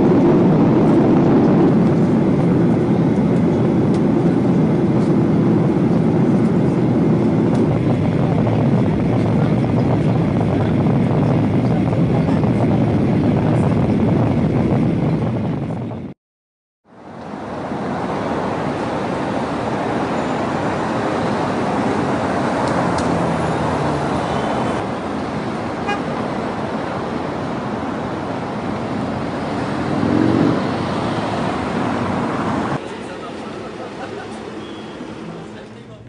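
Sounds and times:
road traffic driving past: 17.0 - 36.0.

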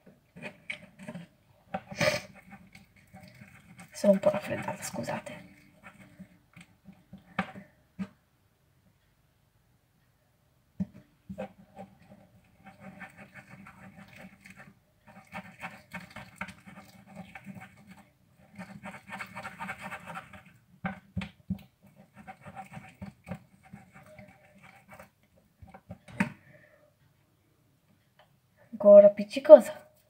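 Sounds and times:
slime squelching while stirred: 0.0 - 8.2, 11.3 - 26.6.

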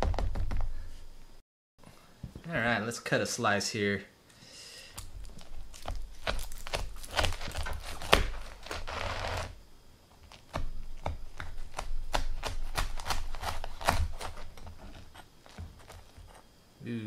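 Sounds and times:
pizza crust crunching: 4.9 - 16.5
knife scraping rasp: 11.6 - 16.0.

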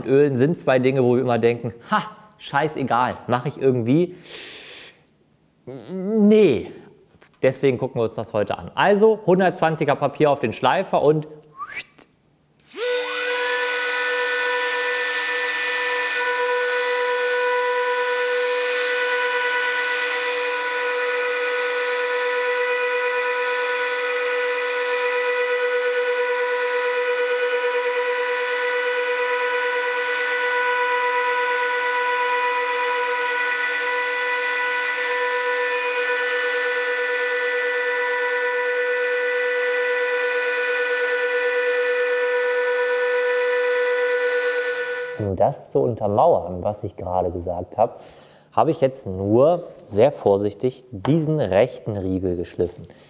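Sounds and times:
electric sander whining: 12.7 - 45.3.

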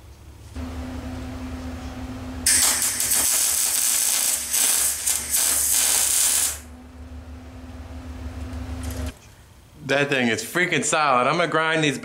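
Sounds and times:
welder arc crackling: 2.4 - 6.7.

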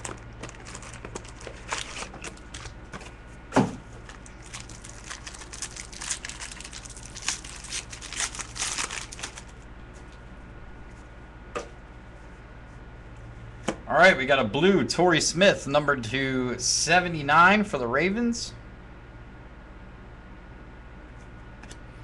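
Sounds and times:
packaging crinkling and tearing: 0.0 - 2.9, 4.0 - 9.6.

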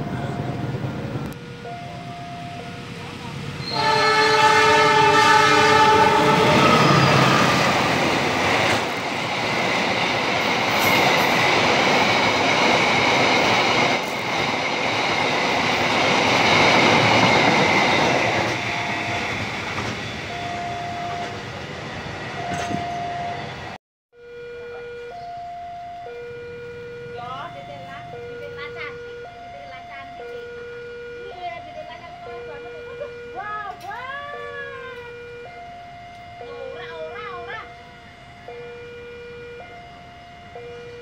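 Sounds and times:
train rumble and wheel clatter: 0.0 - 23.8, 27.1 - 38.7
train horn: 3.6 - 7.8.

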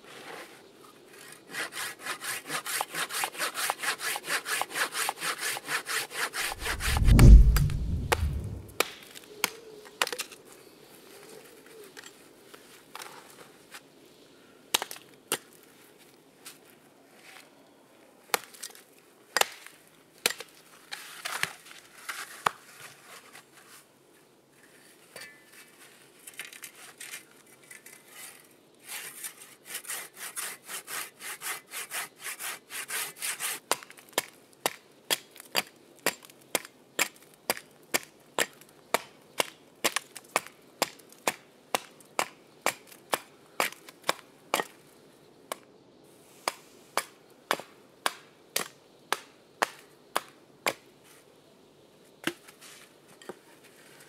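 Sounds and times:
saw rasping through log: 1.5 - 6.8, 29.7 - 33.6.

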